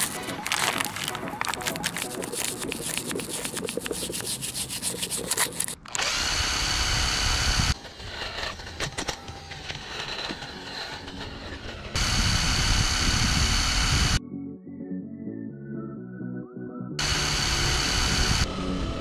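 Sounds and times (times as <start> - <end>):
wire brush scrubbing metal: 0.0 - 5.8
power drill spinning wire brush: 0.0 - 14.2, 17.0 - 18.5.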